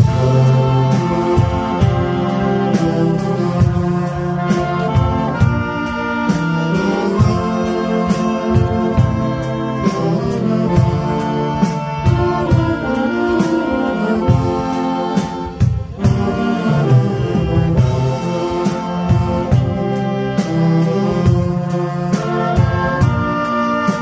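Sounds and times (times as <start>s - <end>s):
drums keeping a steady beat: 0.0s - 24.0s
saxophone ensemble playing chords: 0.0s - 24.0s.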